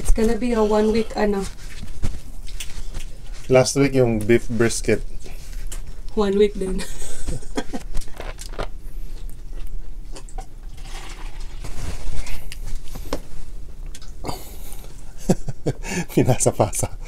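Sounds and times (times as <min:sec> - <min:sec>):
wet chewing: 0:00.6 - 0:04.4, 0:13.8 - 0:15.0.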